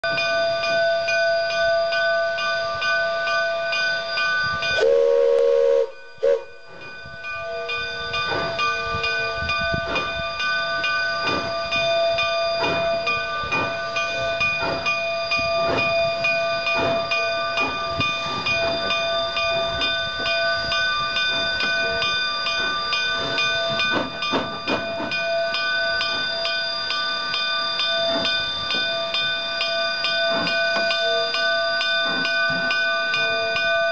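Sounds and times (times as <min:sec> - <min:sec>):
steam locomotive chuffing: 0:03.8 - 0:33.9
steam whistle blasts: 0:04.8 - 0:06.6.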